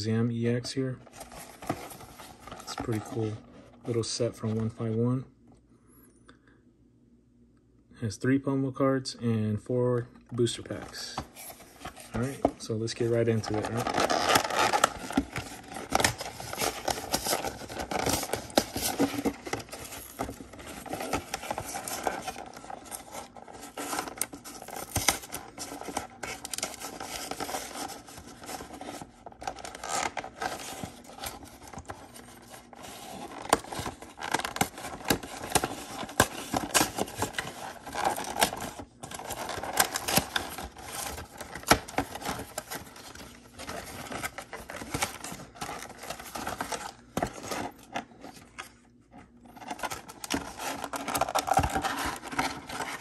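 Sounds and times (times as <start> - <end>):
cardboard scraping and rustling: 1.0 - 4.8, 10.7 - 53.0
tearing cardboard seals: 13.4 - 47.8.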